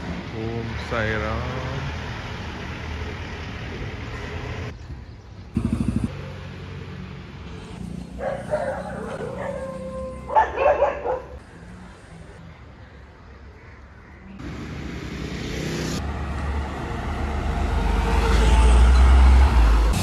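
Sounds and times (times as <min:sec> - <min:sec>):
traffic hum: 0:00.0 - 0:20.0
dogs barking and yelping: 0:08.0 - 0:11.4.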